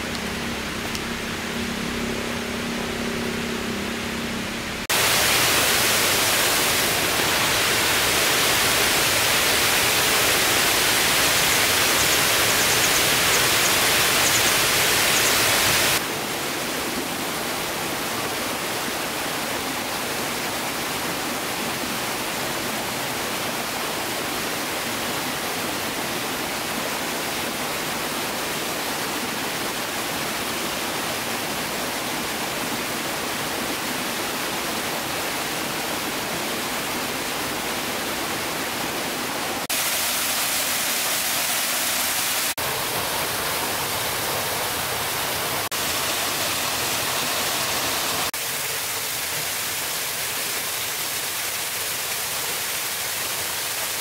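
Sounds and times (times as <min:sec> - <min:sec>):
waterfall rushing: 0:04.8 - 0:54.0.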